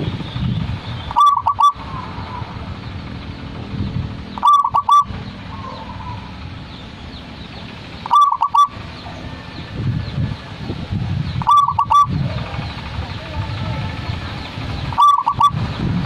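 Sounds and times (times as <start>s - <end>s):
dove cooing: 1.1s - 2.6s, 4.4s - 6.4s, 8.1s - 8.8s, 11.4s - 12.5s, 14.9s - 15.6s.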